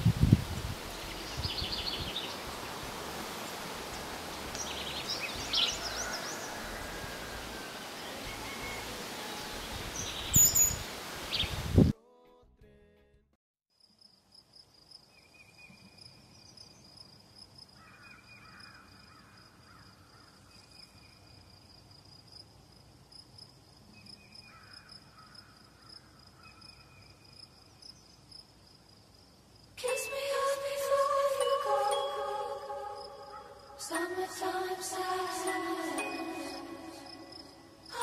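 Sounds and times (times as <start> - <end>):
bird calling: 4.5 - 11.5
insect trilling: 36.0 - 38.0.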